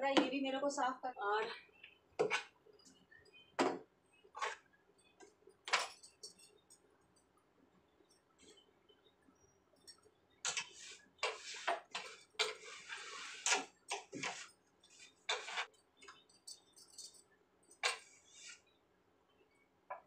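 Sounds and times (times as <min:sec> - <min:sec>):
cloth rubbing: 0:10.6 - 0:15.8.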